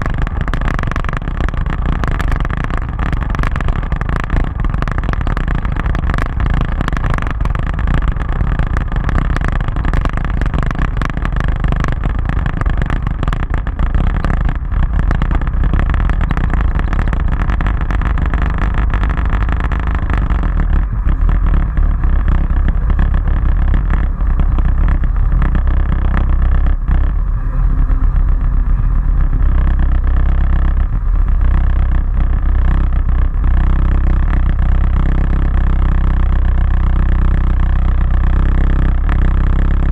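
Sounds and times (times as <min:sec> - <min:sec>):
motorcycle engine running: 0:00.0 - 0:39.9
wind rumble on microphone: 0:00.0 - 0:39.9.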